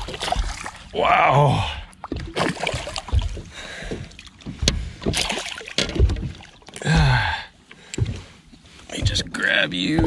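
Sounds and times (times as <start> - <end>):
knocks and thuds on boat deck: 0.0 - 0.8, 2.0 - 10.0
large fish splashing at surface: 0.0 - 0.9, 2.1 - 4.1, 5.0 - 7.0.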